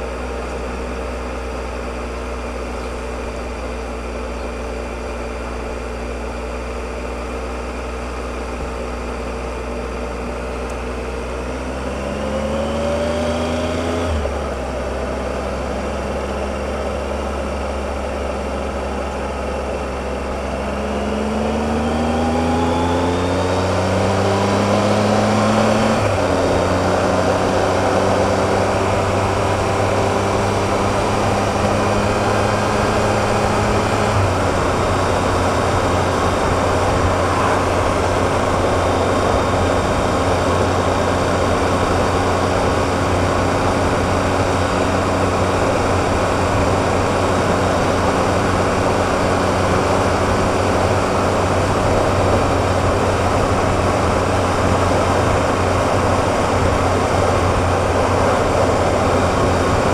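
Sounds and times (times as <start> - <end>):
motorcycle engine running: 0.0 - 59.9
rush of riding wind: 0.0 - 59.9.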